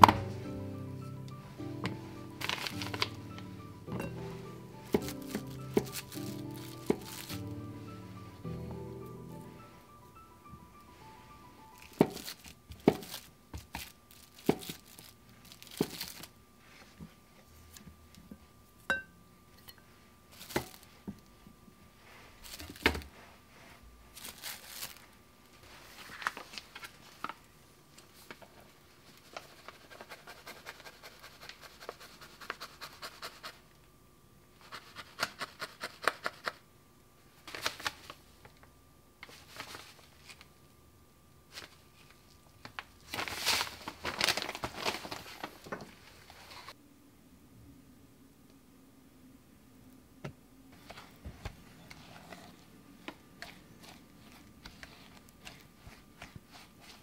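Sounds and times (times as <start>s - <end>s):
plastic packets rustling: 1.0s - 8.4s, 11.7s - 16.4s, 22.4s - 23.1s, 24.1s - 27.5s, 41.5s - 46.8s.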